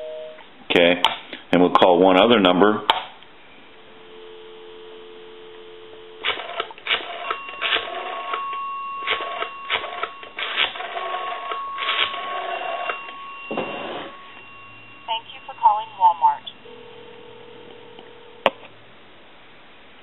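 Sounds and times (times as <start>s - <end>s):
telephone dial tone: 3.9s - 18.5s.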